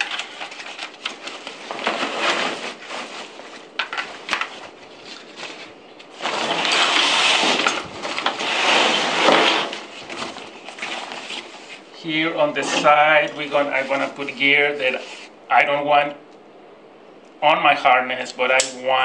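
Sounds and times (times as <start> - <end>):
backpack fabric rustling: 0.0 - 12.0.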